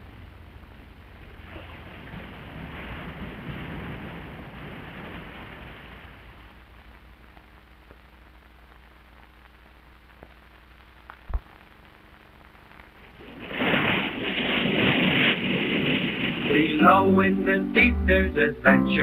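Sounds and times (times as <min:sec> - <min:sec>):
ocean surf: 0:00.0 - 0:06.7, 0:13.0 - 0:19.0
film crackles and pop: 0:00.0 - 0:19.0
film soundtrack hiss: 0:00.0 - 0:19.0.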